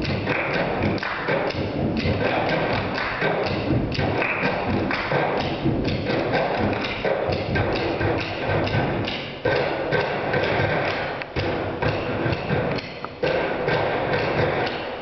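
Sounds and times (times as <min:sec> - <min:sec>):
hand claps: 0:00.0 - 0:07.1.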